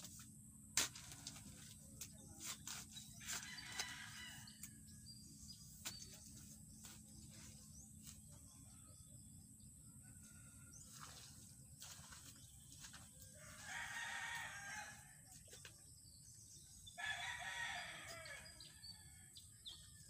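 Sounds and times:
shovel digging into soil: 0.0 - 4.7
distant rooster crowing: 3.2 - 4.8, 13.3 - 15.2, 16.9 - 19.7.

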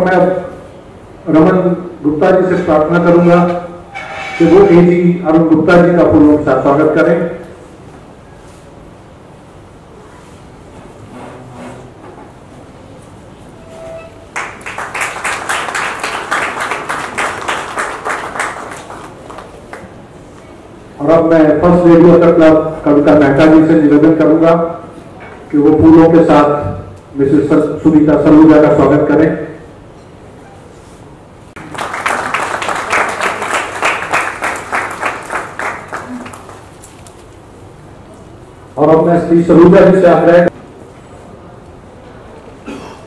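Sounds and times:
audience applauding: 14.3 - 20.0, 31.6 - 36.9.

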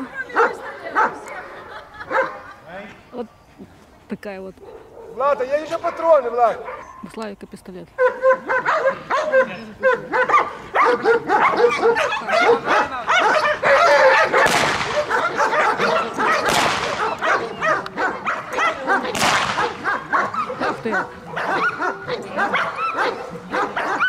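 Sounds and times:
dog barking rapidly: 4.6 - 7.1, 8.0 - 24.0
pistol shots: 14.4 - 15.3, 16.4 - 17.3, 19.1 - 19.8.

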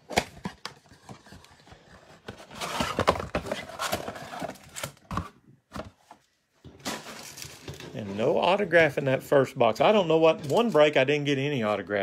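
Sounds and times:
cardboard box rustling and scraping: 0.8 - 5.2.

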